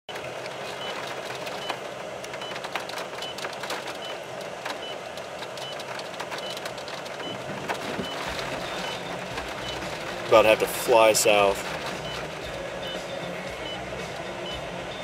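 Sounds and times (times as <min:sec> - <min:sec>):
high electronic beeps: 0:06.4 - 0:15.0.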